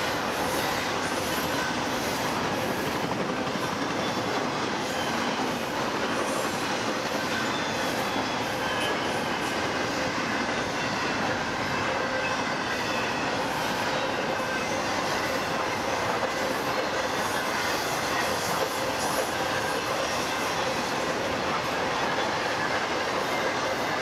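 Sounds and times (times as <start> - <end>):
freight train wheels rumbling: 0.0 - 24.0
high wheel squeal: 0.0 - 24.0.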